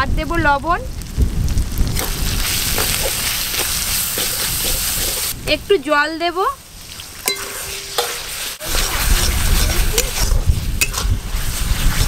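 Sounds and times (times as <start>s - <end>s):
wind rumble on microphone: 0.0s - 6.6s, 8.6s - 12.0s
paste sizzling: 1.8s - 12.0s
spatula scraping a pan: 2.0s - 5.3s, 6.8s - 12.0s
spatula clinking against pan: 7.3s - 8.3s.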